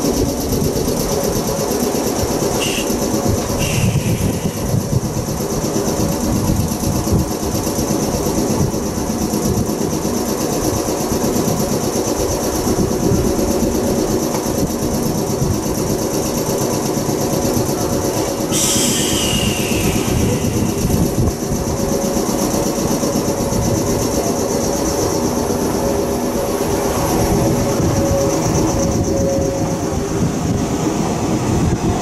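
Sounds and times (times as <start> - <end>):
train equipment humming: 0.0 - 32.0
high hiss: 2.1 - 6.0, 18.1 - 22.1.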